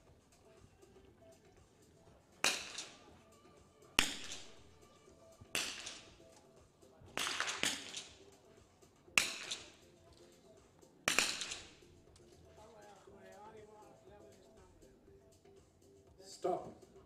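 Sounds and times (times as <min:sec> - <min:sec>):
rifle shots with ringing echo: 0:02.4 - 0:03.2, 0:04.0 - 0:04.9, 0:05.5 - 0:06.2, 0:07.1 - 0:08.2, 0:09.2 - 0:09.9, 0:11.0 - 0:11.9.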